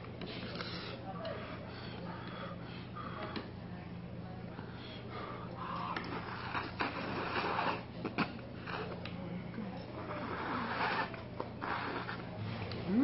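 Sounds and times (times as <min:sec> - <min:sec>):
steady low hum: 0:00.0 - 0:13.0
noodles being slurped: 0:10.1 - 0:12.9.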